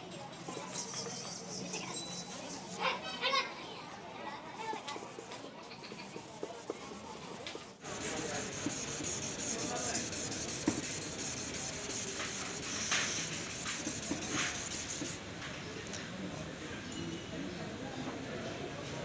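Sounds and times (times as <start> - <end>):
steady background noise: 0.0 - 19.0
palm rubbing plastic lens: 4.6 - 7.8
sanding pad scrubbing plastic: 4.6 - 15.2.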